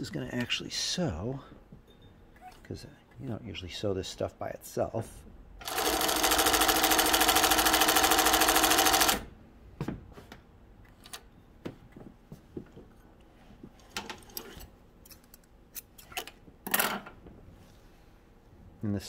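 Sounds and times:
sewing machine stitching: 0:05.6 - 0:09.3.

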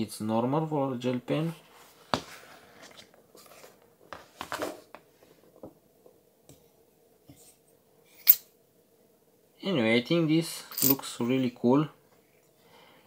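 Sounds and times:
paper notebook rustling: 0:01.4 - 0:05.0.

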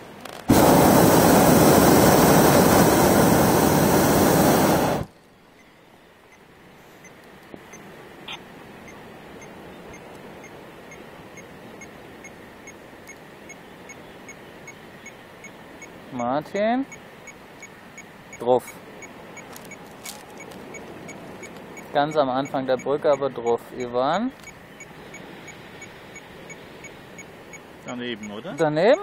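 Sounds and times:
propane burner blast: 0:00.5 - 0:05.1
faint regular ticking: 0:05.5 - 0:16.3, 0:16.9 - 0:29.0.

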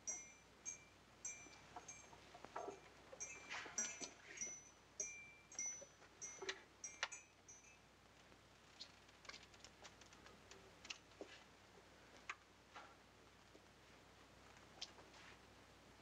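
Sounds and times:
faint clicks and knocks: 0:01.3 - 0:13.8.

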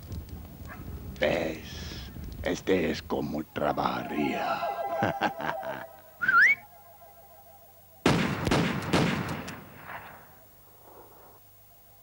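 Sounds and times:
rising whistle: 0:04.0 - 0:08.1
volley of gunshots: 0:08.0 - 0:10.4.

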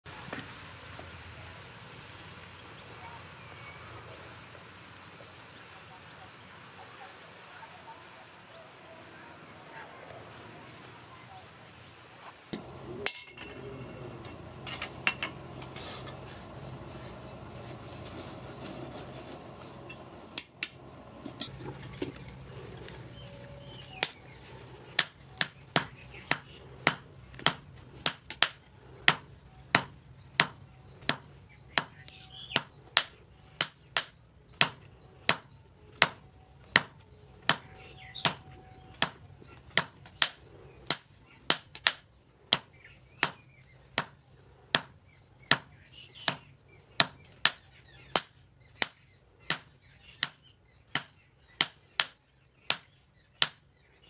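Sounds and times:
hammer striking metal on anvil: 0:12.6 - 0:15.4, 0:25.0 - 0:53.7.

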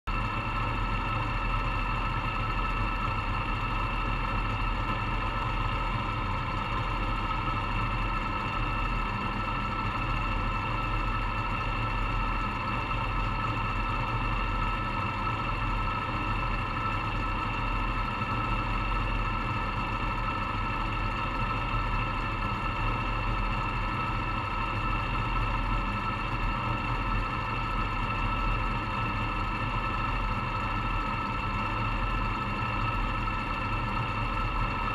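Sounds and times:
race car engine idling: 0:00.1 - 0:34.9.

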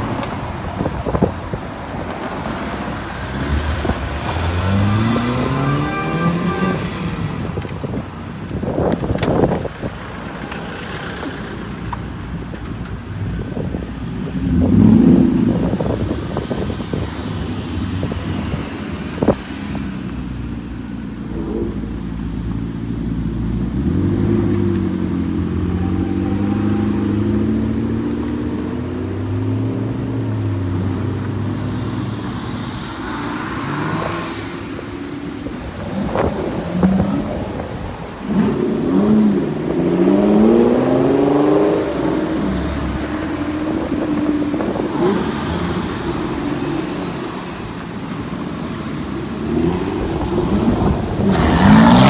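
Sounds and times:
sports cars driving past: 0:00.0 - 0:07.9
car engines revving: 0:00.0 - 0:52.0.

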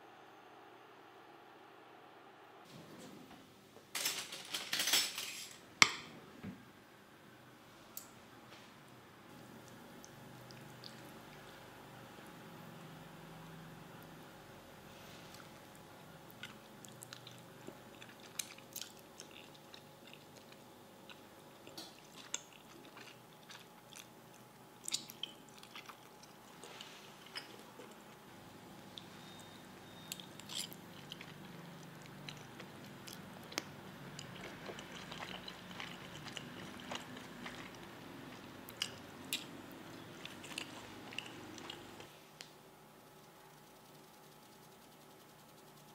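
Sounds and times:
chewing noodles: 0:09.6 - 0:11.6, 0:15.3 - 0:28.2, 0:30.0 - 0:42.1.

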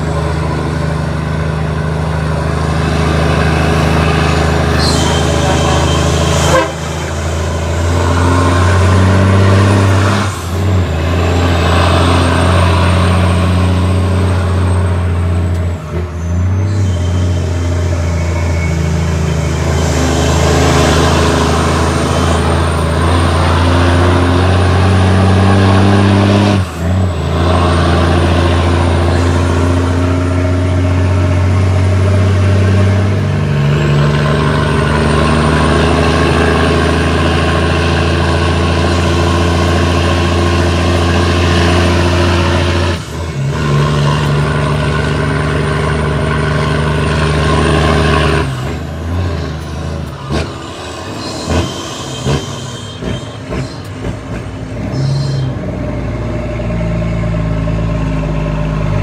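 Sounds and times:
diesel truck engine pulling: 0:00.0 - 0:59.0
engine knocks and clicks: 0:52.3 - 0:55.4.

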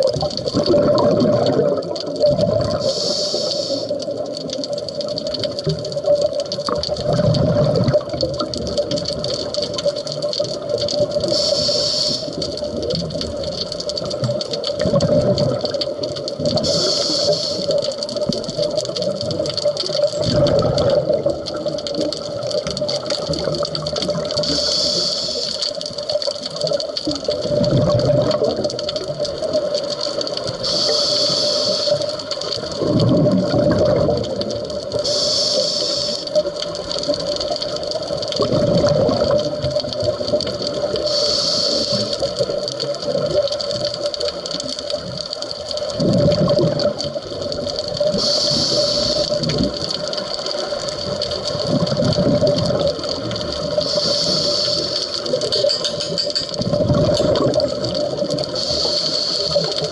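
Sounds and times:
exhaled bubbles rumbling: 0:00.0 - 0:59.9
regulator hiss on inhale: 0:02.7 - 0:04.2, 0:11.2 - 0:12.6, 0:16.5 - 0:18.1, 0:24.4 - 0:25.8, 0:30.5 - 0:32.4, 0:34.9 - 0:36.7, 0:40.8 - 0:42.5, 0:48.1 - 0:49.6, 0:53.6 - 0:56.5, 0:58.4 - 0:59.9.

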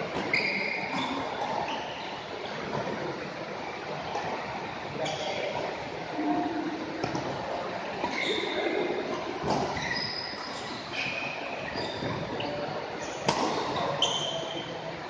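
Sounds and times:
shoes squeaking on court floor: 0:00.1 - 0:02.9, 0:05.0 - 0:05.7, 0:07.0 - 0:14.8.

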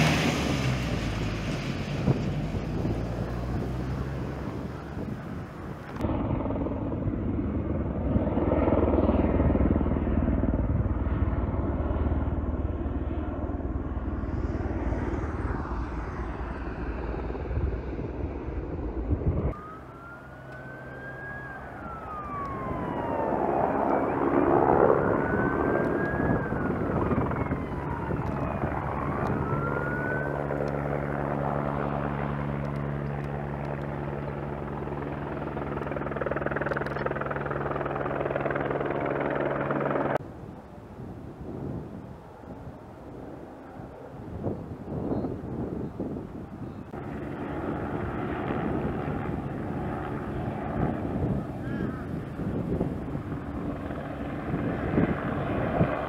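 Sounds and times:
engine drone: 0:00.0 - 0:40.4
fire truck sirens wailing: 0:19.5 - 0:30.7.

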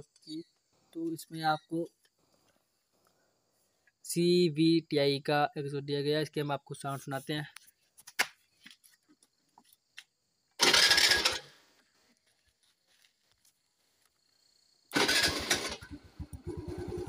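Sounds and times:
scooter engine starting and running: 0:10.6 - 0:11.6, 0:14.9 - 0:17.0.

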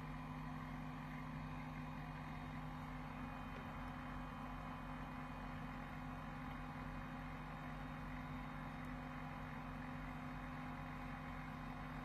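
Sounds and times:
printer mechanical hum: 0:00.0 - 0:12.0.

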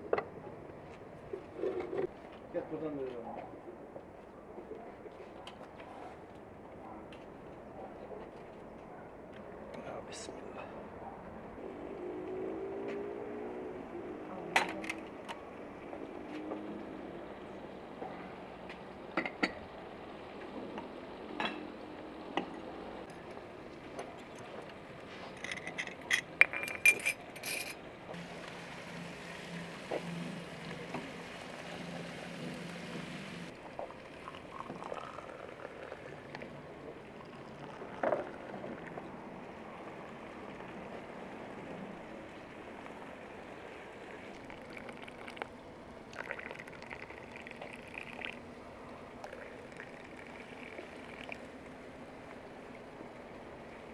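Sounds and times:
glasses clinking: 0:25.4 - 0:27.8
tea pouring into glasses: 0:25.6 - 0:39.2, 0:43.4 - 0:51.6
water running from tap into glasses: 0:28.2 - 0:36.2, 0:44.3 - 0:45.5, 0:46.1 - 0:48.4, 0:49.2 - 0:51.4.

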